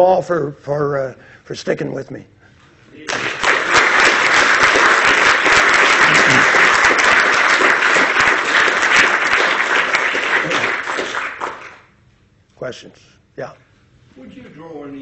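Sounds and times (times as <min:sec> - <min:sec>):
audience applauding: 0:03.0 - 0:11.9.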